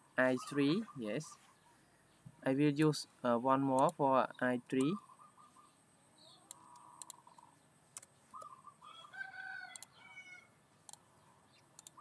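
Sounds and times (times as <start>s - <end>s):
drawn-out bird call: 0.2s - 2.4s, 4.8s - 10.5s
sharp clicks: 3.7s - 4.0s, 4.7s - 5.0s, 6.4s - 8.5s, 9.7s - 10.0s, 11.8s - 12.0s.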